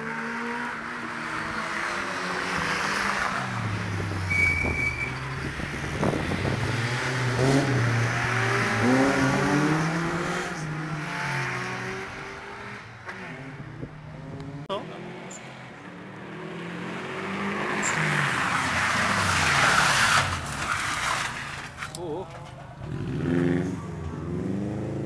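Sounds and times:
race car engines passing: 0.0s - 25.0s
high squeal: 4.3s - 5.5s.

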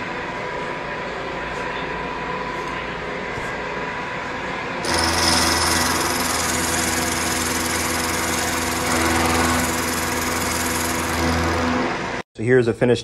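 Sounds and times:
milling machine hum: 3.9s - 12.2s.

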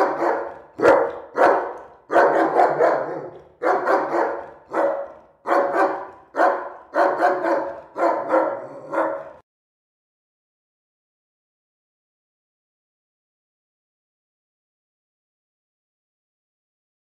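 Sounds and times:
large dog barking: 0.0s - 9.4s.

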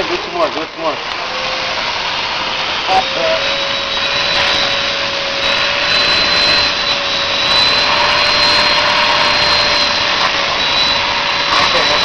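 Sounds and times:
vacuum cleaner running: 0.0s - 12.0s.

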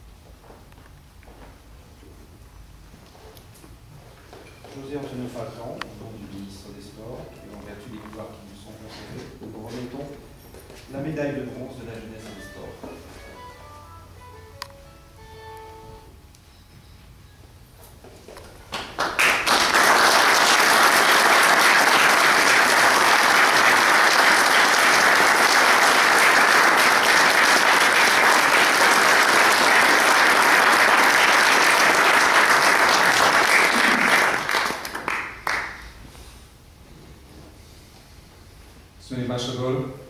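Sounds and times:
audience applauding: 18.7s - 35.9s.

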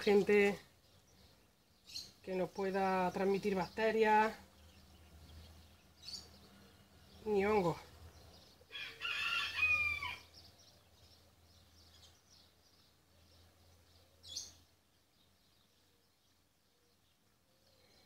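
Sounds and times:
faint bird chirps: 4.4s - 18.0s
rooster crowing: 8.7s - 10.4s.

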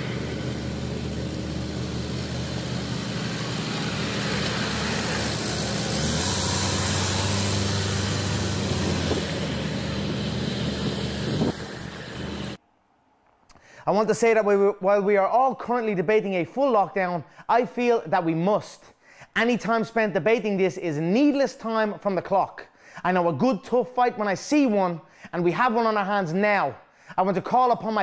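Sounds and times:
car engine and road noise: 0.0s - 12.6s.

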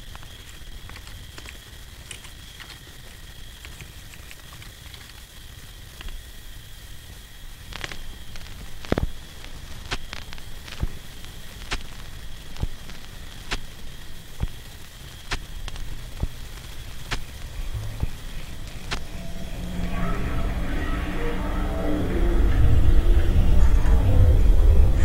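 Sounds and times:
sharp crackles and clicks: 0.0s - 25.0s
low rumble: 15.6s - 25.0s
faint high tone: 18.8s - 25.0s.

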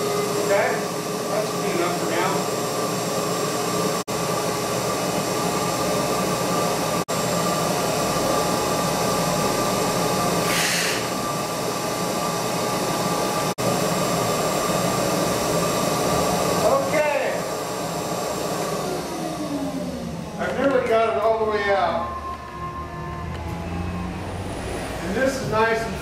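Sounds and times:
shop vac running: 0.0s - 26.0s
air hissing: 10.3s - 11.2s.

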